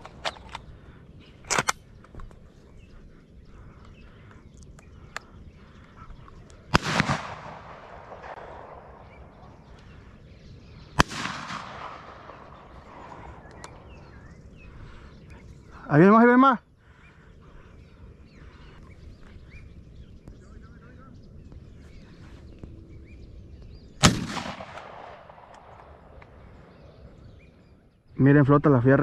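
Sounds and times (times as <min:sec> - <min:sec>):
shotgun shots with echo: 0:06.7 - 0:09.6, 0:11.0 - 0:13.8, 0:24.0 - 0:26.0.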